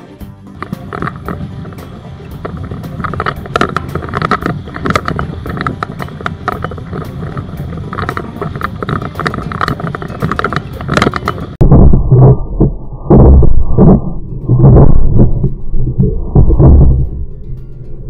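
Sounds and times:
water rushing and slapping on hull: 0.6s - 12.0s
wind on microphone: 0.6s - 17.4s
loud low thud: 11.6s - 17.2s.

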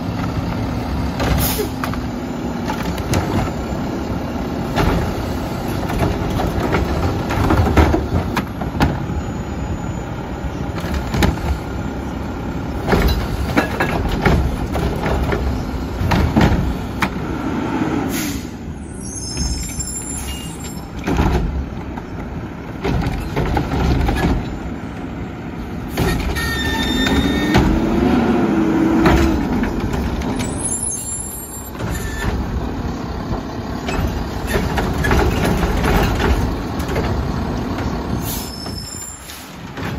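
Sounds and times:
diesel engine under load: 0.0s - 39.9s
carts knocking and clanking: 4.6s - 9.2s, 12.7s - 17.2s, 19.4s - 25.0s, 25.9s - 28.0s, 28.9s - 39.0s, 39.6s - 39.9s.

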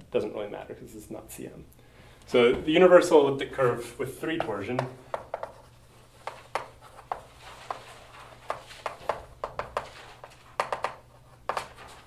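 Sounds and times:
faint low room hum: 0.0s - 12.0s
chalk tapping and scratching: 4.3s - 12.0s.

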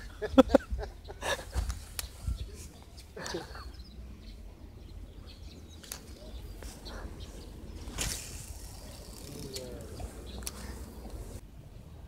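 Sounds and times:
wind on microphone: 0.0s - 3.0s.

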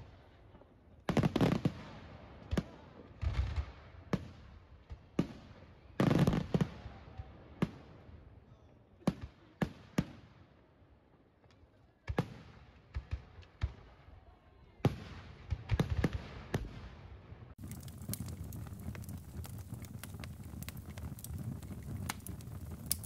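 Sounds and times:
fireworks bursting with bangs: 17.6s - 23.0s.

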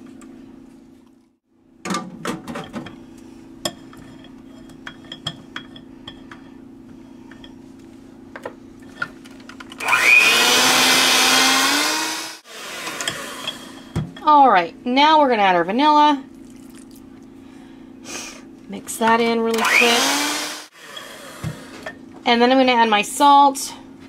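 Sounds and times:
electric hand mixer running: 9.8s - 13.9s, 19.5s - 21.8s.

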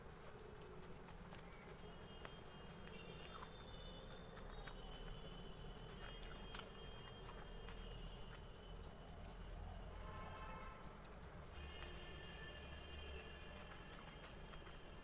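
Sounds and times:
soft clicks from eating: 0.1s - 8.5s.

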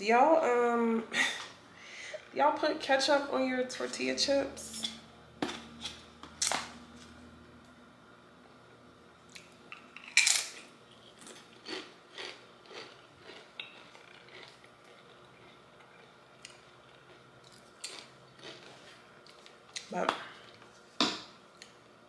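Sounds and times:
chewing crunches: 9.3s - 20.8s
chip crunch: 9.3s - 20.8s.

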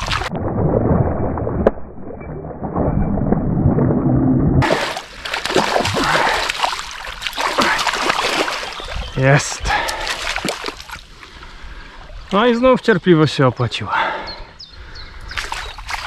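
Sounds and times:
fish splashing in water: 4.6s - 9.0s, 9.7s - 11.1s, 15.4s - 16.0s.

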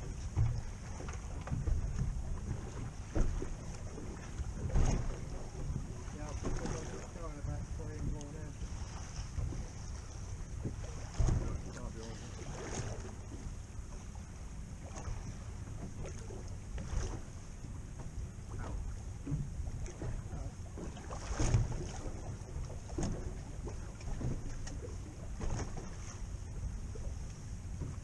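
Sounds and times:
wind rumble on microphone: 0.0s - 28.0s.

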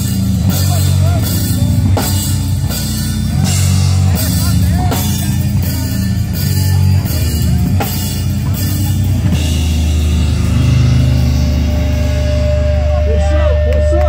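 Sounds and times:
distorted electric guitar: 0.0s - 14.0s
drum kit: 0.0s - 14.0s
steady high tone: 3.4s - 14.0s.

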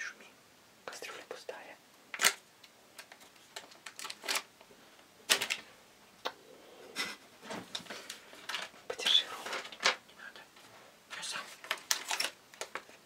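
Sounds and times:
plastic candy packet crinkling: 3.0s - 4.5s, 5.3s - 5.7s, 11.1s - 13.0s.

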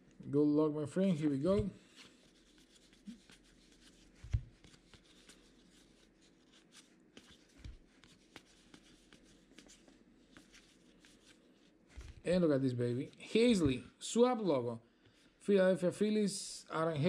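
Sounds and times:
cards rustling and clicking: 1.5s - 12.2s.

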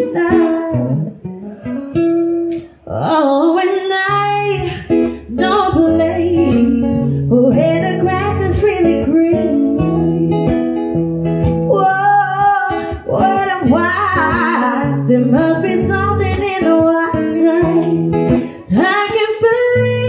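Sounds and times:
person singing: 0.0s - 1.7s, 11.7s - 20.0s
acoustic guitar chords: 0.0s - 20.0s.

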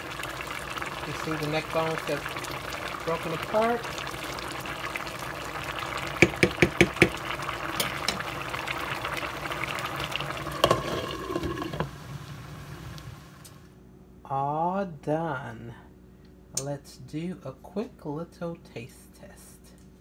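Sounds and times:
pot boiling and bubbling: 0.0s - 13.7s
wooden spoon tapping pot: 6.2s - 7.2s.

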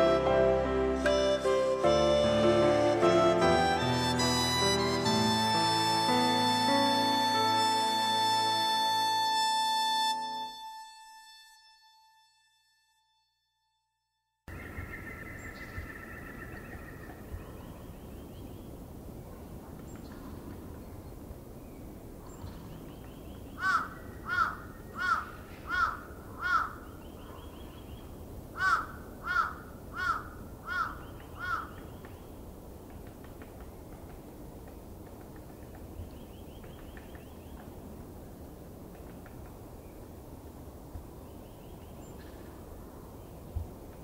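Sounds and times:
outdoor background hiss: 0.0s - 11.6s, 14.5s - 44.0s
crow cawing: 23.6s - 26.8s, 28.6s - 31.8s.

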